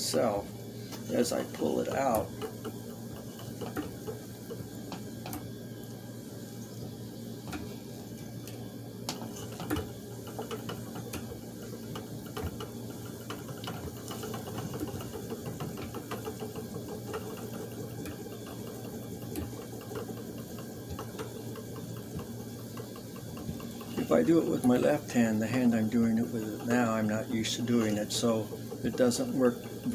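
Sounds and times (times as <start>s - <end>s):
spinning wheel whirring: 0.0s - 29.9s.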